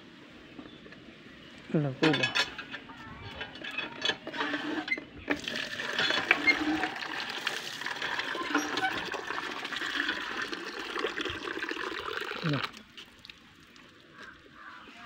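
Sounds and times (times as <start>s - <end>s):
water running: 4.3s - 14.1s.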